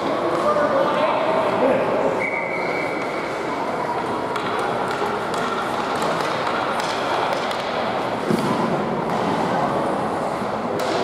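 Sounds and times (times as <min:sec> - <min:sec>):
hockey stick tapping puck: 0:04.3 - 0:09.3, 0:10.8 - 0:11.0.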